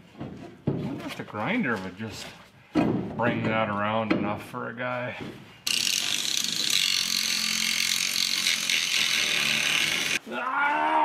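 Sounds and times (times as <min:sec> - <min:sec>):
angle grinder grinding steel: 0:05.6 - 0:10.2.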